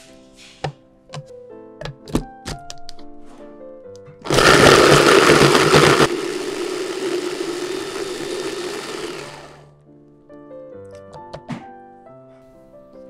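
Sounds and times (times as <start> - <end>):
electric chopper blending: 4.3 - 9.6.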